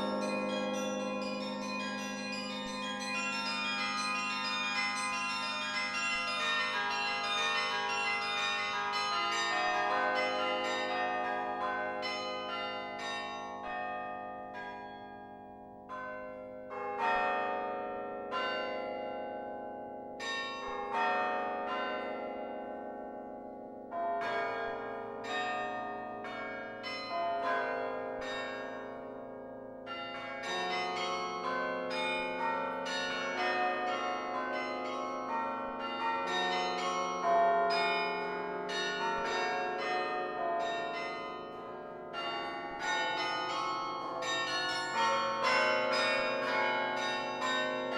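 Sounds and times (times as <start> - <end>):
carillon bell melody: 0.0 - 11.4.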